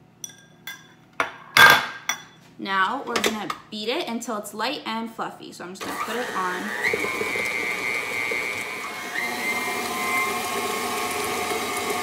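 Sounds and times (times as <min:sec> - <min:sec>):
stand mixer motor whining: 0:05.8 - 0:12.0.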